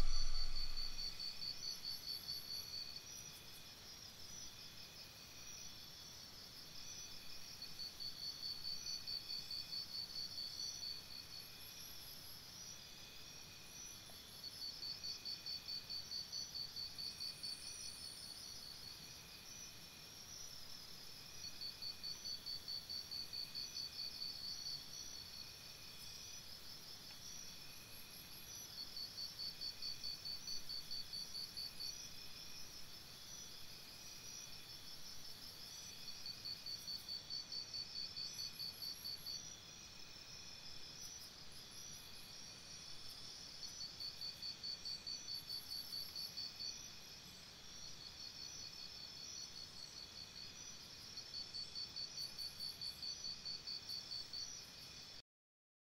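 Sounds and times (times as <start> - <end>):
faint high-pitched chirps: 0.0 - 1.2
crickets chirping: 0.0 - 55.2.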